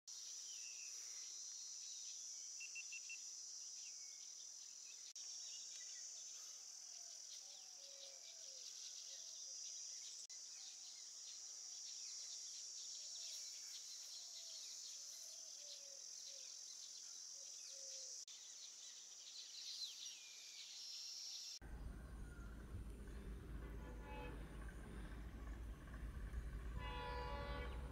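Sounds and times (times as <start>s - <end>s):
insects chorus: 0.1s - 22.4s
low hum: 21.6s - 27.9s.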